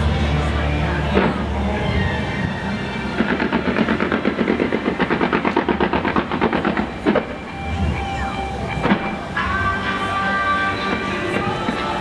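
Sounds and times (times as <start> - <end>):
rapid firework pops: 3.2 - 7.4.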